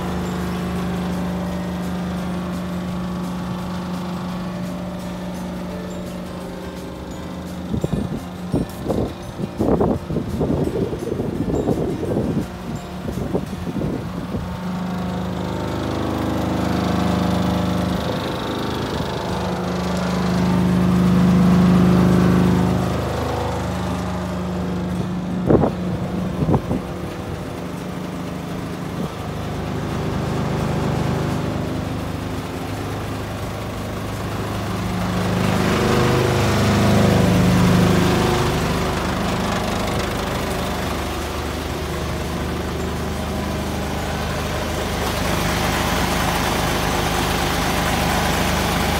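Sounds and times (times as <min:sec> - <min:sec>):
diesel truck engine idling: 0:00.0 - 0:48.9.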